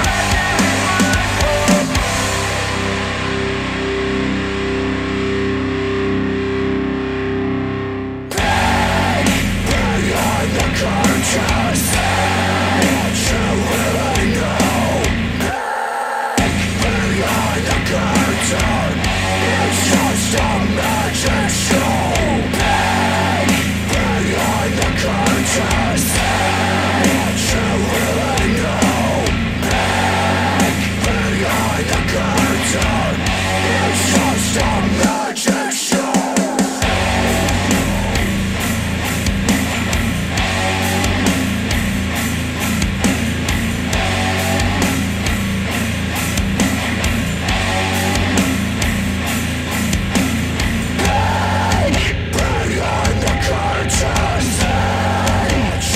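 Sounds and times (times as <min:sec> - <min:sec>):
distorted guitar and vocals: 0:00.0 - 0:55.9
heavy metal music over speakers: 0:00.0 - 0:55.9.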